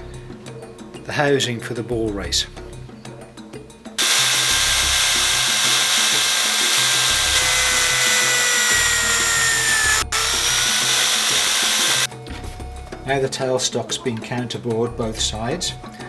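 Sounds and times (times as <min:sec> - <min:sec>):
electric drill boring into wood: 0:04.0 - 0:12.1.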